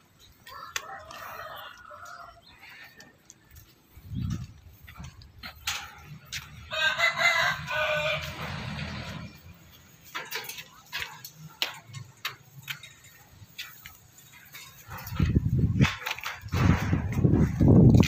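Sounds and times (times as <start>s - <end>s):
rooster crowing: 0.4s - 2.9s, 6.5s - 9.3s.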